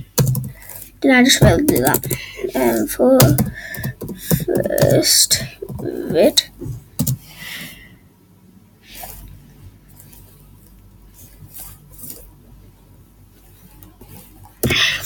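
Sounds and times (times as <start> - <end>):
low room hum: 0.0 - 15.0
keyboard keystrokes: 1.4 - 5.0.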